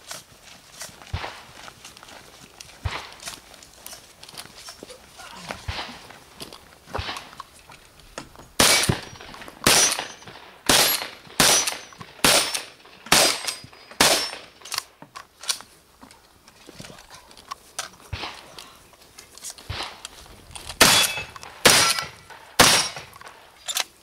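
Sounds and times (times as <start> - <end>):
shotgun shots: 5.6 - 6.1, 7.0 - 7.4, 8.6 - 14.6, 19.7 - 20.0, 20.8 - 23.2.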